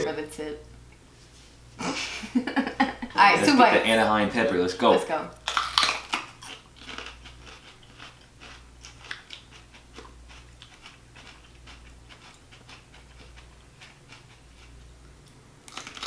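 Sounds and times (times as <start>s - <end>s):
low steady hum: 0.0s - 16.0s
crunchy chewing: 5.4s - 16.0s.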